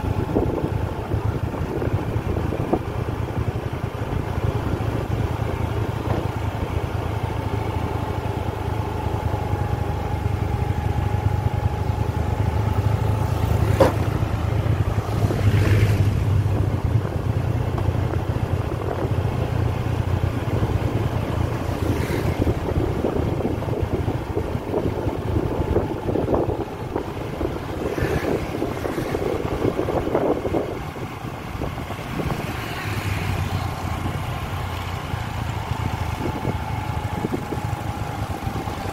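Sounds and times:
motorbike engine running: 0.0s - 38.9s
wind rushing past microphone: 12.5s - 38.9s.

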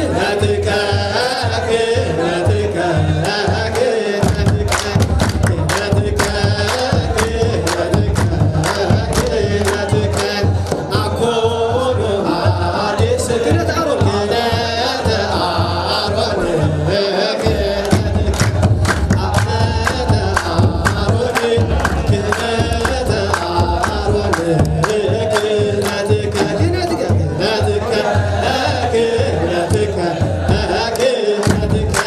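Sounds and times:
crowd singing a chant: 0.0s - 32.0s
hand drums beating: 0.0s - 32.0s
hand-clapping: 3.2s - 11.1s, 17.4s - 27.2s, 30.8s - 32.0s.

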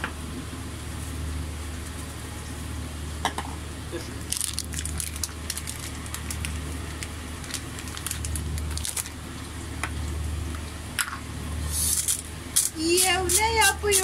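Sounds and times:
steady low hum: 0.0s - 14.0s
meat crunching in breadcrumbs: 4.2s - 9.2s.

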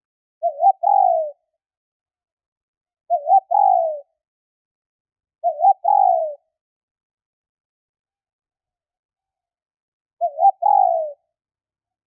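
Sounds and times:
dove cooing: 0.4s - 1.4s, 3.1s - 4.1s, 5.4s - 6.5s, 10.2s - 11.2s.

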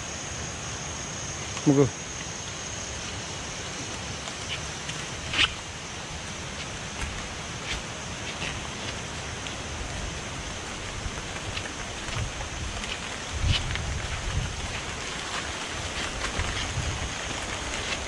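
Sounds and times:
steady rushing noise: 0.0s - 18.0s
footsteps on trail: 3.0s - 18.0s
rain jacket rustles: 10.5s - 18.0s.

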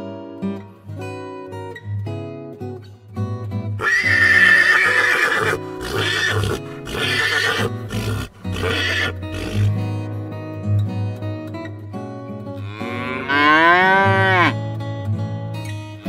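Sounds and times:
acoustic guitar music: 0.0s - 4.7s, 5.5s - 16.0s
horse neighing: 3.8s - 9.8s.

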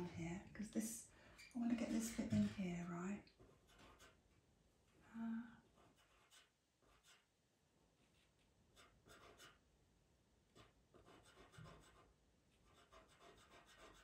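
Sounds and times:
pencil scratching on paper: 1.4s - 2.8s, 3.4s - 4.4s, 5.7s - 7.3s, 8.0s - 9.6s, 10.5s - 14.0s.

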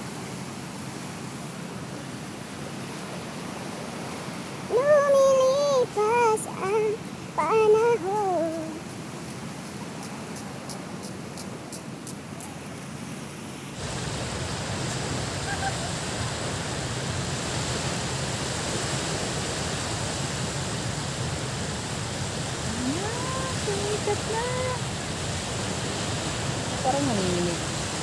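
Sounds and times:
water at the shoreline: 0.0s - 28.0s
wind: 0.0s - 28.0s.

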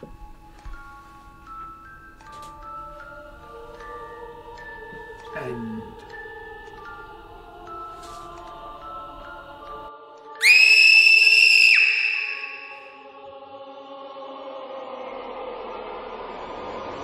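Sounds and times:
soft background music: 0.0s - 11.1s
high-pitched whistle tone: 10.4s - 13.1s.

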